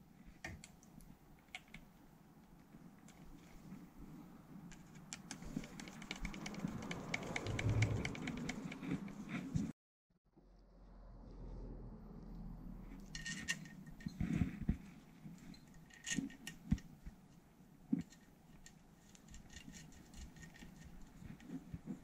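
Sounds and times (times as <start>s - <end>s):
small clicks of metal and plastic: 0.3s - 3.5s, 4.7s - 9.3s, 15.4s - 16.9s, 17.9s - 21.9s.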